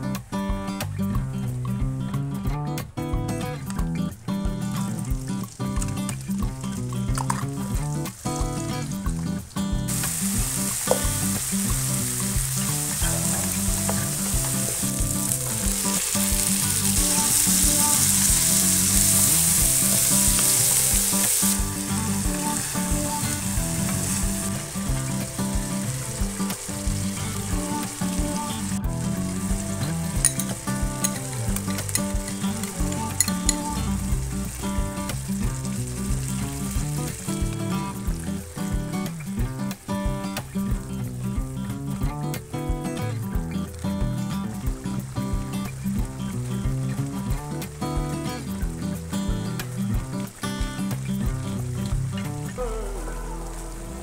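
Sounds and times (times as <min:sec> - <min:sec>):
meat frying in hot oil: 0:03.7 - 0:54.0.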